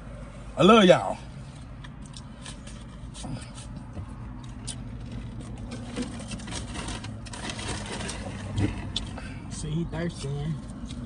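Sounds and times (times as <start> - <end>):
food packaging crinkling: 5.0 - 8.9.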